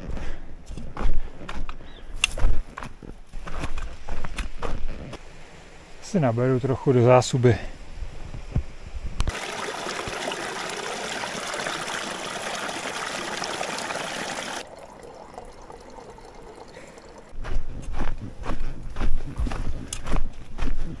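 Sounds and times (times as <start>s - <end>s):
water running into container: 9.3s - 17.4s.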